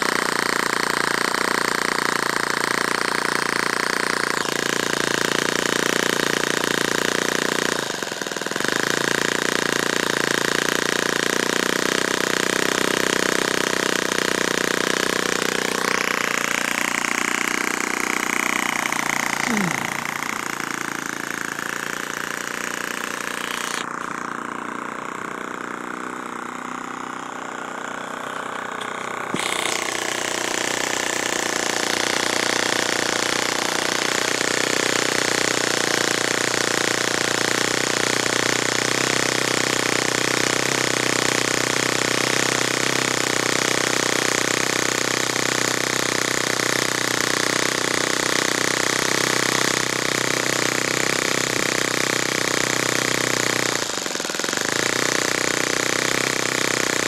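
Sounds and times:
model airplane engine running: 0:00.0 - 0:57.0.

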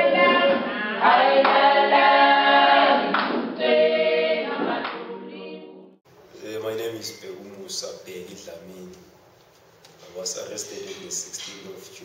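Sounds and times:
choir singing a cappella: 0:00.0 - 0:06.0.

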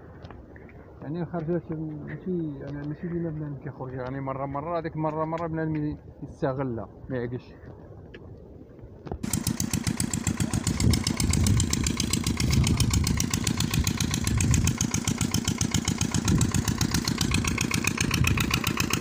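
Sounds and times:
engine running: 0:09.2 - 0:19.0.

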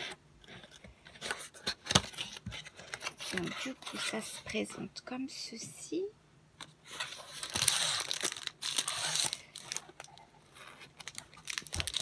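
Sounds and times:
plastic packaging crinkling: 0:06.9 - 0:12.0.

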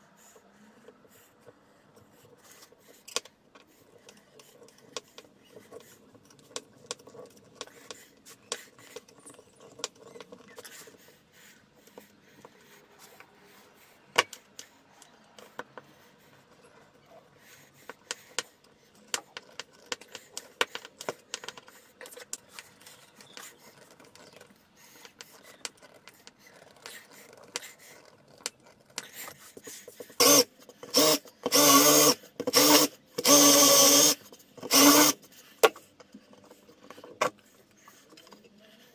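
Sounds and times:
hand tool clicking and scraping: 0:17.8 - 0:37.4
cordless drill boring into wood: 0:30.2 - 0:35.2.

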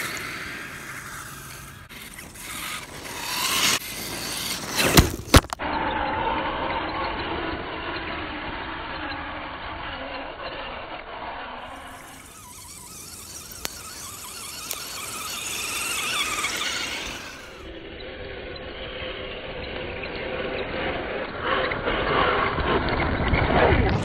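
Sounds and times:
tyres over loose rock: 0:00.0 - 0:05.6, 0:11.6 - 0:17.7
toy car electric motor whining: 0:00.0 - 0:24.0
sharp ticks: 0:11.9 - 0:17.7.

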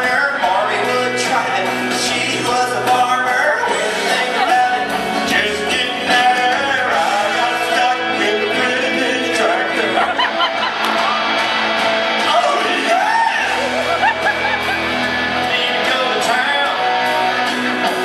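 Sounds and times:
man singing: 0:00.0 - 0:10.4, 0:12.2 - 0:13.9, 0:15.3 - 0:18.0
electric guitar: 0:00.0 - 0:18.0.

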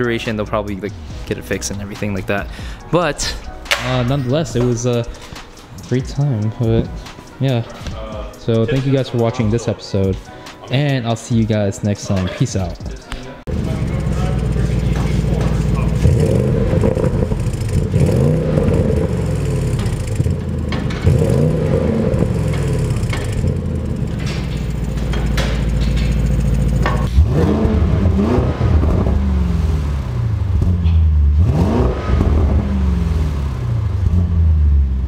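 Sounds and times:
car engine idling and revving: 0:13.4 - 0:35.0.

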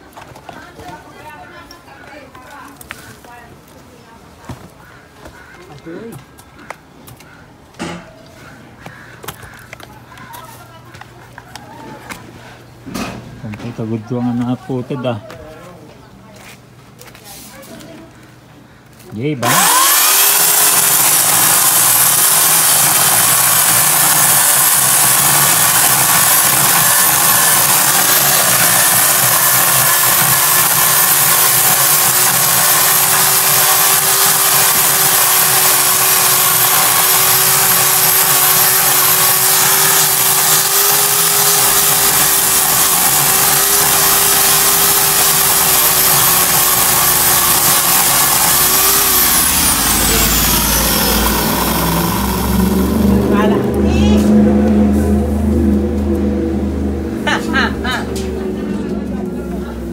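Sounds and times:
electric chainsaw cutting wood: 0:19.3 - 0:58.4.

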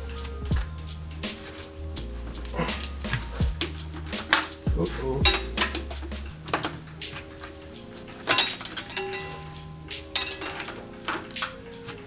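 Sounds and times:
background music: 0:00.0 - 0:12.0
sharp metal clank: 0:05.2 - 0:06.8, 0:08.2 - 0:11.6.

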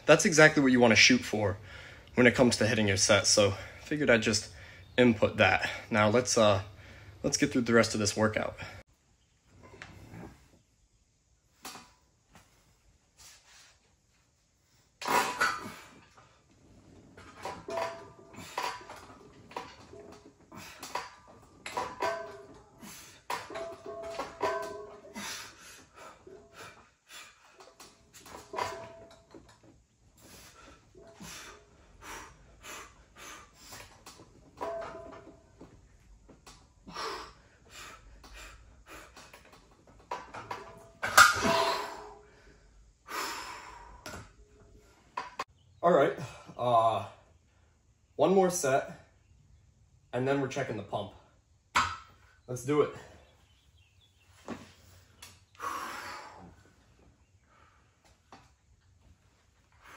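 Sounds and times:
weight plates clanking: 0:17.1 - 0:25.4, 0:28.2 - 0:29.6, 0:34.4 - 0:35.7, 0:40.2 - 0:42.2
man breathing hard: 0:36.8 - 0:39.4, 0:55.5 - 0:56.7.

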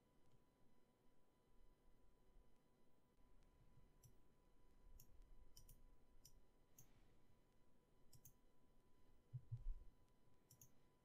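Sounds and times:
computer mouse clicks: 0:03.4 - 0:04.2, 0:05.0 - 0:07.0, 0:08.1 - 0:08.4, 0:10.5 - 0:10.8
soft low thumps: 0:09.3 - 0:09.9.

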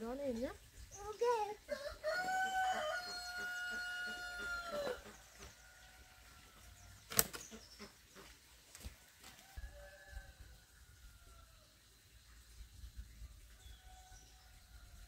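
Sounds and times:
rooster crowing: 0:01.7 - 0:05.1, 0:09.3 - 0:11.6
sharp click: 0:07.1 - 0:07.4.

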